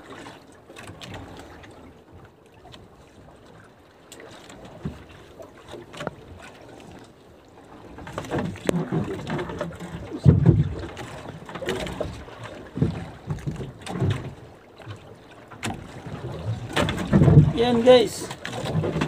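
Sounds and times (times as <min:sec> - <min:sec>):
thumps against wooden boat: 0:08.1 - 0:15.0, 0:15.6 - 0:17.6.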